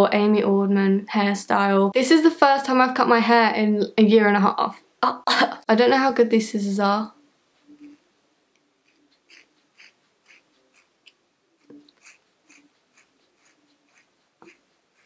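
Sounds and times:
scissors cutting hair: 8.8 - 14.6.

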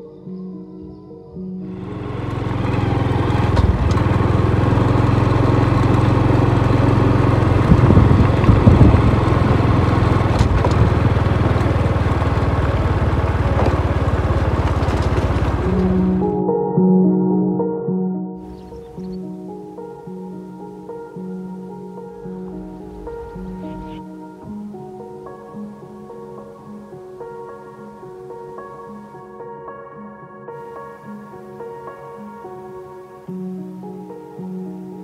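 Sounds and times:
small motorcycle engine running: 1.8 - 16.2.

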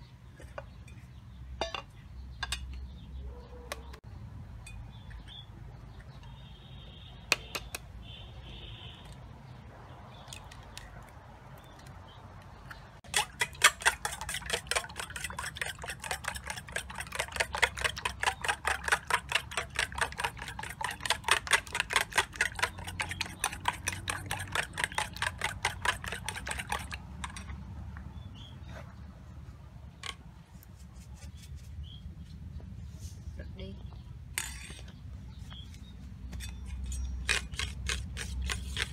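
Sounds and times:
spoon beating eggs in metal bowl: 13.0 - 27.6, 36.5 - 38.9.

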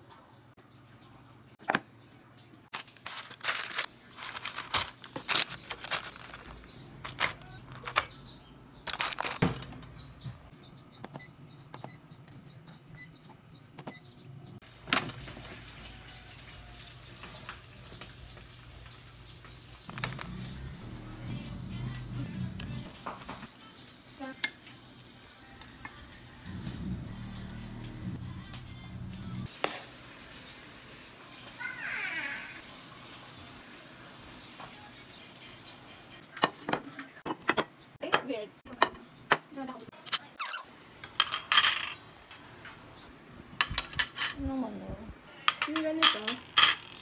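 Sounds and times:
food containers and utensils clattering: 2.7 - 8.2, 8.9 - 9.9, 36.4 - 42.0, 43.6 - 44.4, 45.5 - 47.0.

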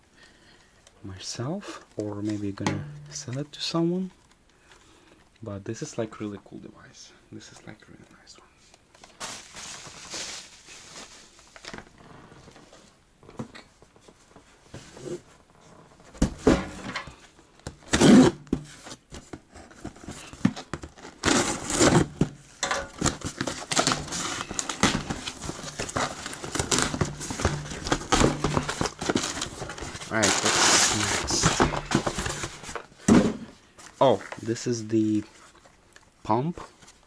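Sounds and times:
packing crinkling: 8.9 - 12.0, 19.5 - 33.0
cardboard and tape ripping: 17.8 - 33.4.

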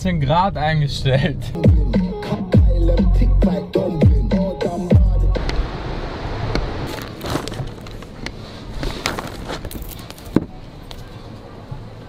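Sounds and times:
rustling: 6.8 - 11.1.

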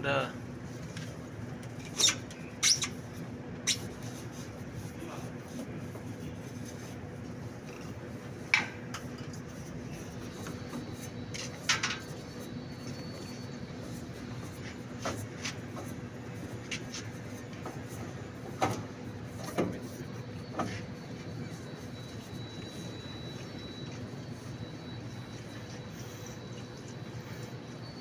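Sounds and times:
steady low hum: 0.0 - 28.0
light rubbing: 1.8 - 27.6.

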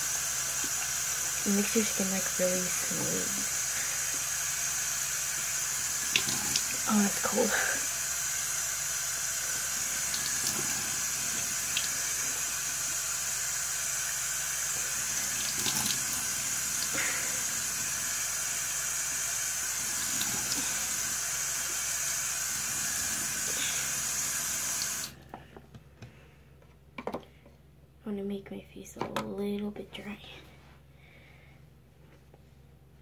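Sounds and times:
tap water running: 0.0 - 25.2.

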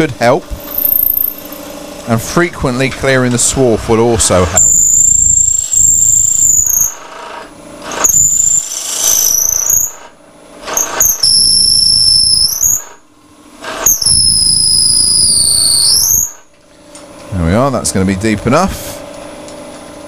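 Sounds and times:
drill bit screeching into wood: 0.7 - 1.6, 4.6 - 10.1, 10.7 - 13.0, 13.6 - 16.5.

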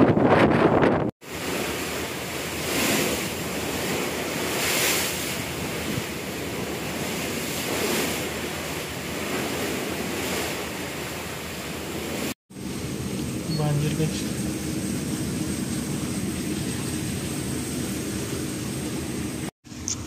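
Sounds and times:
wind buffeting microphone: 0.0 - 13.4
water rushing past ship hull: 1.2 - 19.5.

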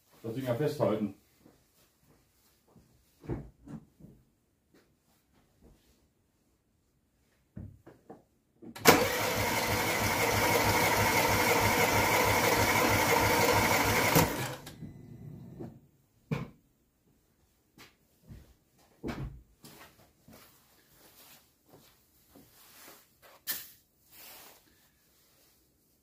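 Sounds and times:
starter motor cranking engine: 8.8 - 14.8.

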